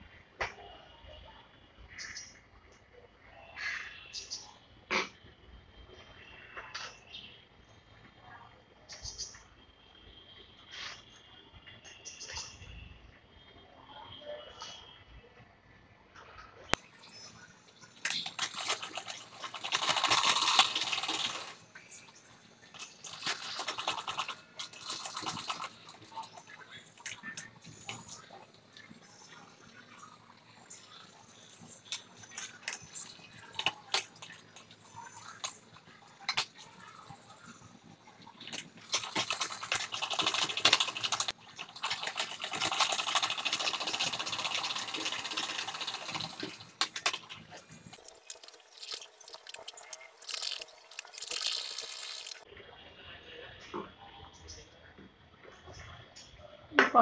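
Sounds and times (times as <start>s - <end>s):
sewing machine stitching: 18.0s - 28.3s, 38.3s - 52.4s.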